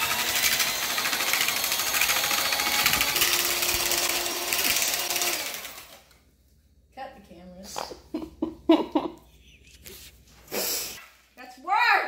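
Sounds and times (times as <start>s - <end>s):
electric hand mixer running: 0.0s - 6.2s.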